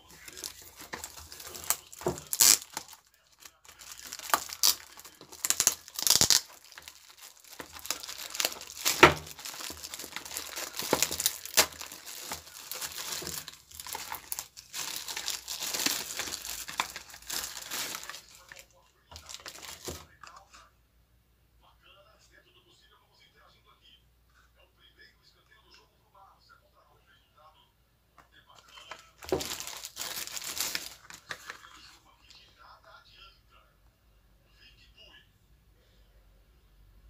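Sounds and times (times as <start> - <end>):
plastic wrapping crinkling: 0.0 - 20.2, 28.6 - 32.0.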